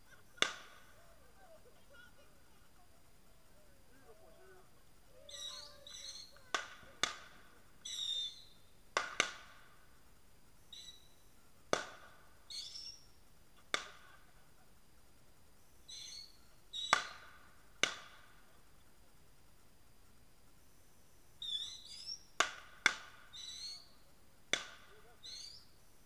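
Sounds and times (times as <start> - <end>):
burning tree crackling and popping: 0.0 - 26.0
high squealing whistles: 5.1 - 6.8, 7.7 - 8.7, 10.6 - 11.3, 12.5 - 13.2, 15.6 - 17.4, 21.4 - 22.4, 23.3 - 24.1, 25.0 - 26.0.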